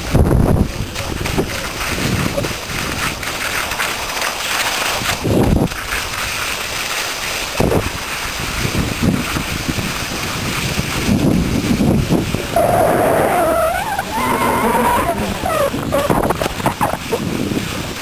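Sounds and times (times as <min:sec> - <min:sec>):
wind buffeting microphone: 0:00.0 - 0:03.3, 0:05.0 - 0:05.9, 0:07.6 - 0:18.0
skis hissing on snow: 0:12.4 - 0:18.0.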